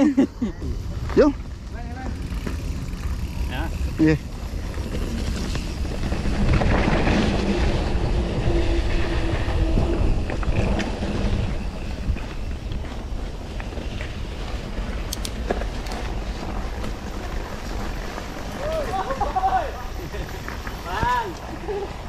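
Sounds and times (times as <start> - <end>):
bike clicks and rattles: 0.0 - 22.0
tyres rumbling on dirt trail: 0.0 - 22.0
wind buffeting microphone: 0.5 - 18.4.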